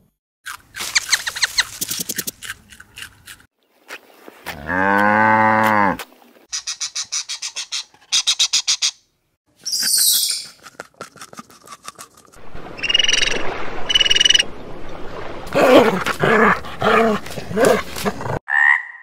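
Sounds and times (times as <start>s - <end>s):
cow mooing: 4.6s - 6.0s.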